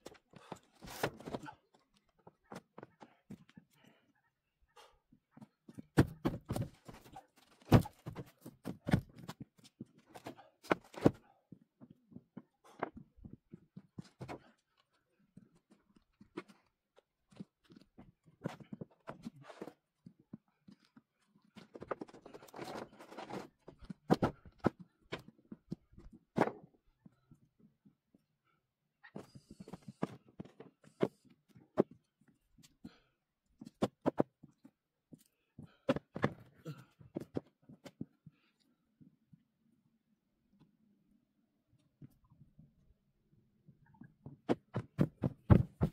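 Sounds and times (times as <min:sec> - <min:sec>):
footsteps on wooden pallets: 0:05.7 - 0:14.5, 0:44.2 - 0:45.9.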